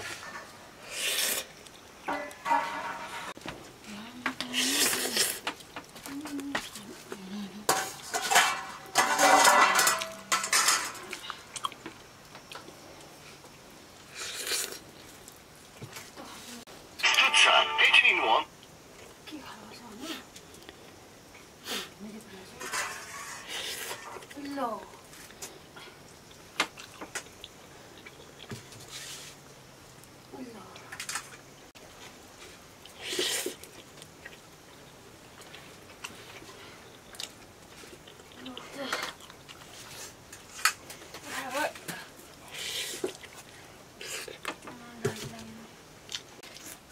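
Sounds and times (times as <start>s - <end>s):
metal utensils clinking on cookware: 2.1s - 3.3s, 7.7s - 11.2s, 22.6s - 24.1s
person chewing noodles: 11.1s - 12.7s, 14.0s - 15.4s, 26.2s - 28.5s, 32.8s - 40.6s.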